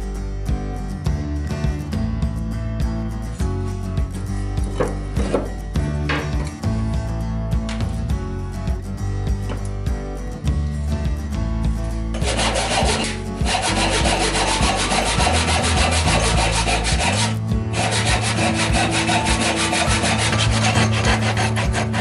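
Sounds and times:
hand saw cutting wood: 12.2s - 22.0s.

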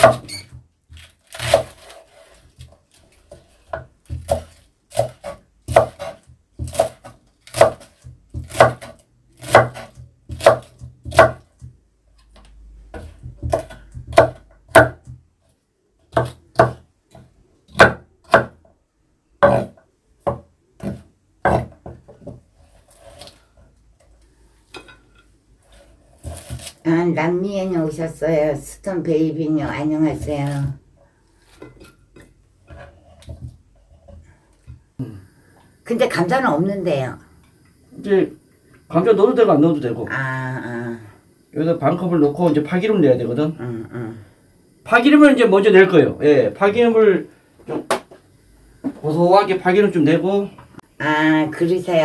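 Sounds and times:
knife chopping on wooden board: 0.0s - 0.4s, 1.3s - 2.0s, 3.3s - 11.7s, 12.9s - 15.2s, 16.1s - 18.6s, 19.4s - 22.4s, 26.2s - 26.8s.

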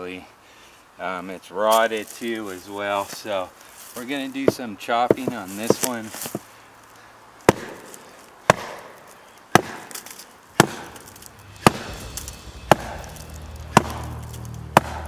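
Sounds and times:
knife blade chopping into log: 7.5s - 8.9s, 9.5s - 15.0s.

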